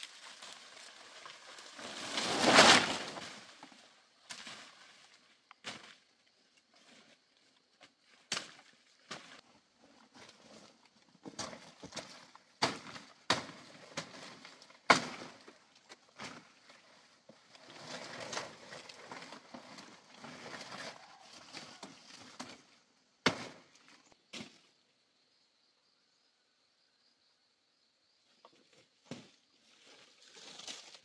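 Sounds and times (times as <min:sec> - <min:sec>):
leaves rustling and crunching: 0:00.0 - 0:05.9, 0:29.6 - 0:31.0
machete chopping stalks: 0:12.6 - 0:15.5, 0:23.2 - 0:23.8.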